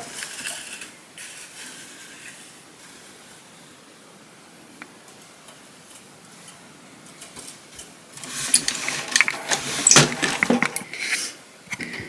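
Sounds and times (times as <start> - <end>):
loom clattering and clicking: 5.0 - 10.8.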